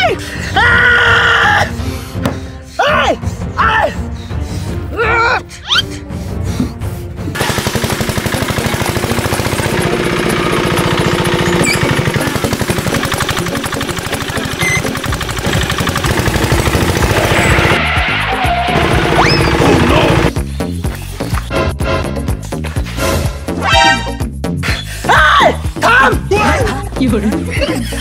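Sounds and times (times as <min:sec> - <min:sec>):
cargo cart engine chugging: 0:07.4 - 0:17.8, 0:18.7 - 0:20.3
person shouting: 0:25.0 - 0:26.8.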